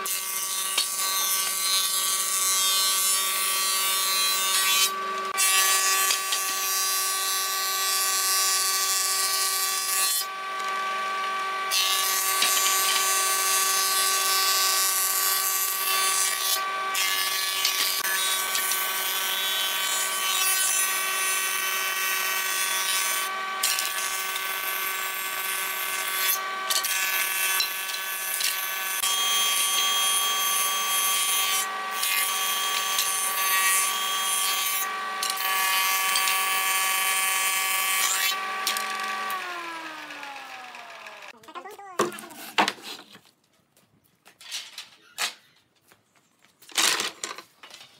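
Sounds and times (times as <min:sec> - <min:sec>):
planer machine whine: 0:17.7 - 0:41.4.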